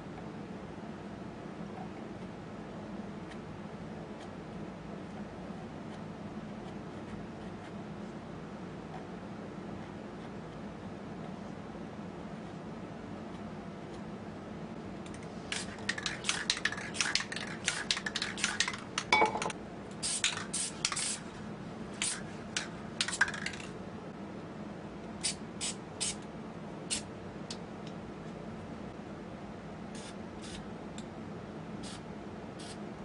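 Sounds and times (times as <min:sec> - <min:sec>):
spray paint can hissing: 0:20.0 - 0:21.2.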